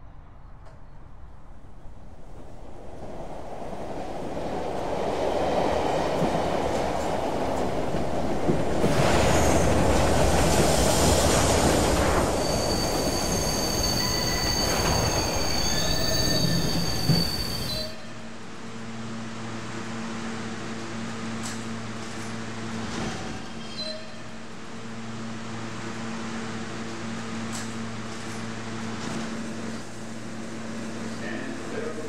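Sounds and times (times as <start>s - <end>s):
subway train rumbling: 0.0s - 32.0s
wheels and brakes squealing: 12.0s - 18.0s, 23.3s - 24.4s.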